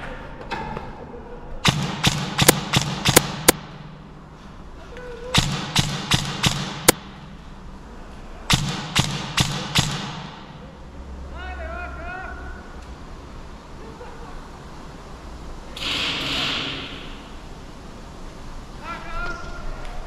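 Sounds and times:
airsoft rifle shots: 0:01.6 - 0:04.0, 0:05.4 - 0:07.4, 0:08.5 - 0:10.6.

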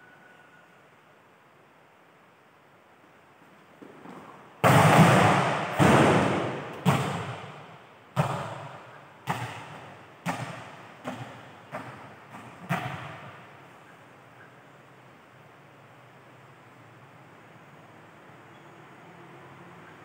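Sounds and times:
ball bouncing on hall floor: 0:03.8 - 0:07.6, 0:08.2 - 0:13.4
volleyball struck hard: 0:04.6 - 0:13.4.

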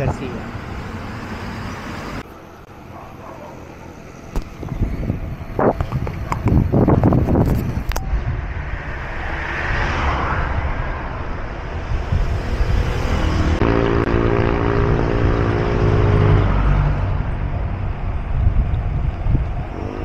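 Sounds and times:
tyre and road rumble: 0:00.0 - 0:20.0
vehicle engine drone: 0:00.0 - 0:20.0
wind on microphone: 0:04.4 - 0:13.7, 0:17.0 - 0:20.0.

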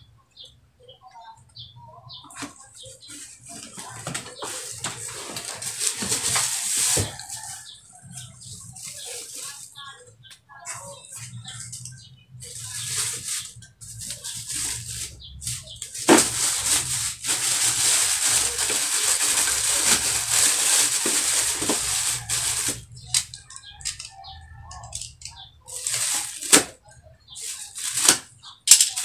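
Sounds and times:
plastic wrap crinkling: 0:02.4 - 0:09.9, 0:12.4 - 0:24.0, 0:25.7 - 0:26.7, 0:27.4 - 0:29.0.

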